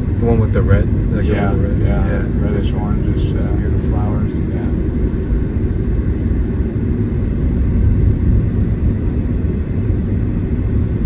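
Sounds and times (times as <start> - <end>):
road and tyre rumble: 0.0 - 11.0.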